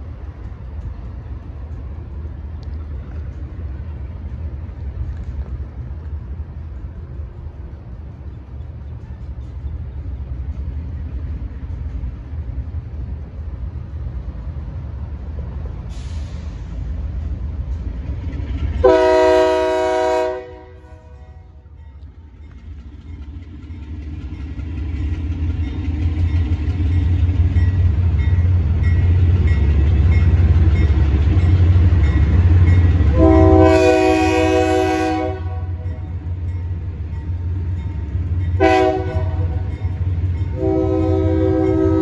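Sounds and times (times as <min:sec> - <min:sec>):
diesel locomotive engine rumble: 0:00.0 - 0:42.0
train air horn blasts: 0:18.8 - 0:21.6, 0:33.0 - 0:35.8, 0:38.6 - 0:39.7, 0:40.5 - 0:42.0.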